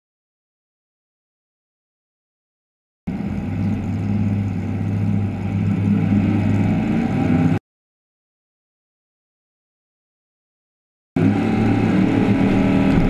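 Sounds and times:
race car engine running: 3.1 - 7.6, 11.2 - 13.0.

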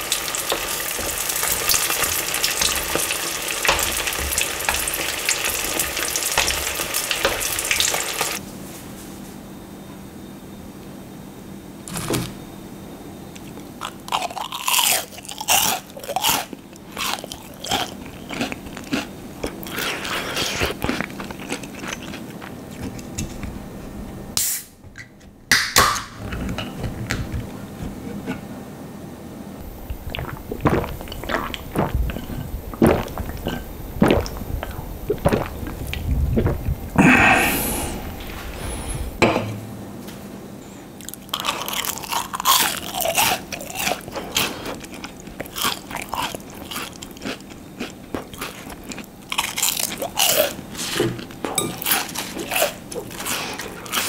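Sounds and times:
crunchy fried fish chewing: 13.4 - 23.5, 29.6 - 36.7, 41.0 - 54.0.

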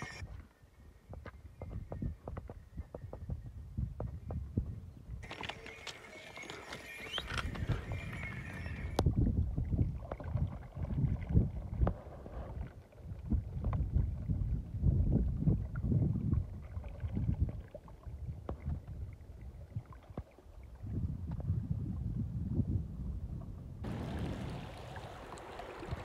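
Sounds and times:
wind rumbling on microphone: 0.0 - 26.0
water sloshing and splashing: 5.2 - 14.4.

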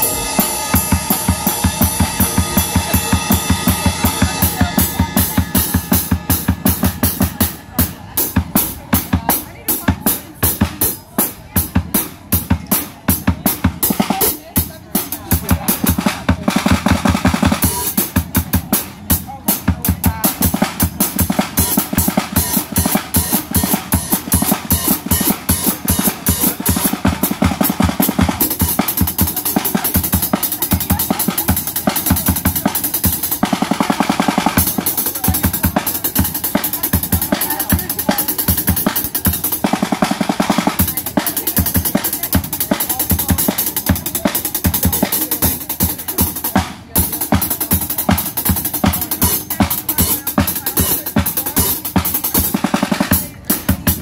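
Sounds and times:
bass drum: 0.0 - 10.8
cymbals washing: 0.0 - 11.4, 17.4 - 54.0
drum strokes: 0.0 - 54.0.

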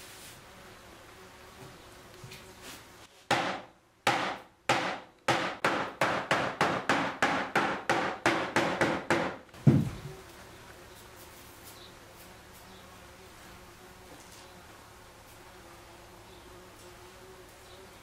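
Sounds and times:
heavy deep thump: 9.6 - 10.1.

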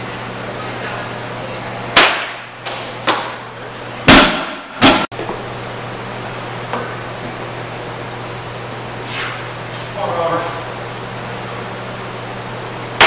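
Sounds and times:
steady low hum: 0.0 - 13.0
barbell dropped on platform: 4.1 - 5.1.

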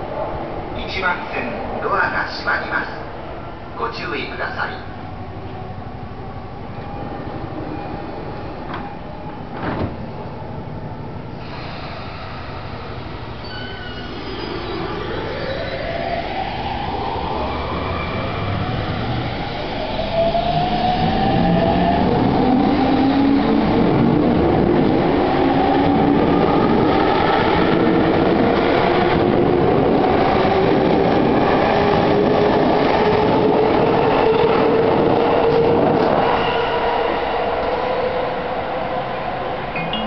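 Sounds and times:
train wheels rumbling on rail: 18.7 - 36.7.

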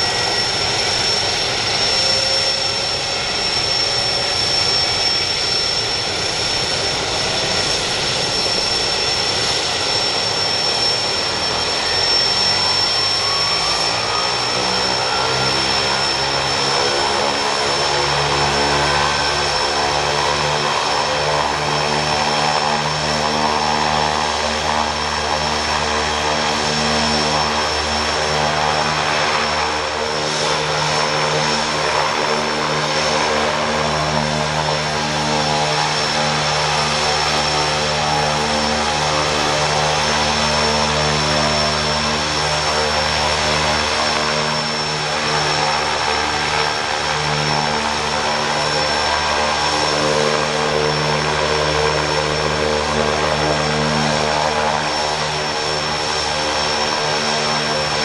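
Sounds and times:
high turbine whine: 0.0 - 58.0
turboprop engine running: 0.0 - 58.0.

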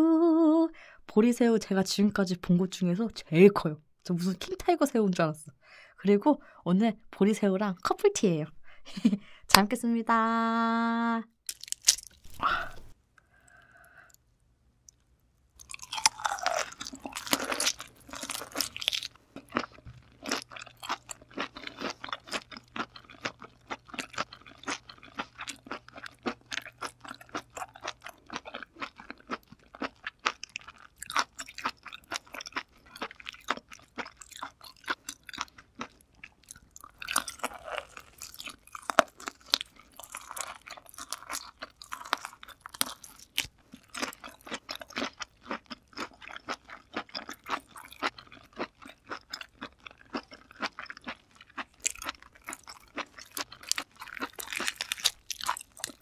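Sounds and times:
chewing prawn: 11.5 - 13.8, 15.6 - 56.0.

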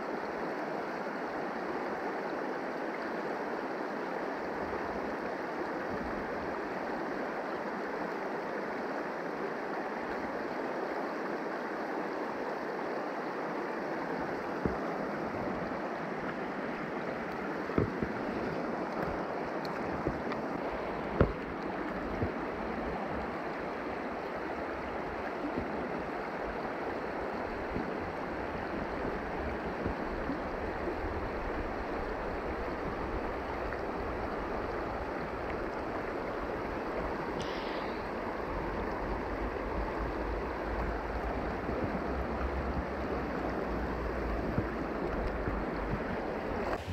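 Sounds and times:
creek water flowing: 0.0 - 46.9.

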